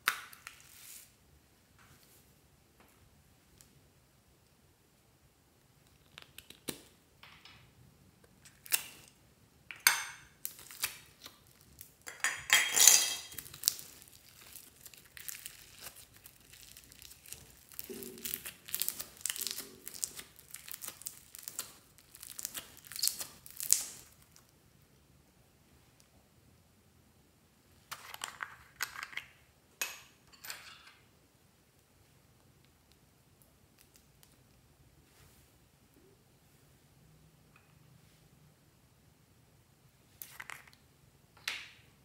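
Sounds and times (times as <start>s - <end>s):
slime crinkling and crackling: 10.4s - 12.1s, 13.3s - 24.5s.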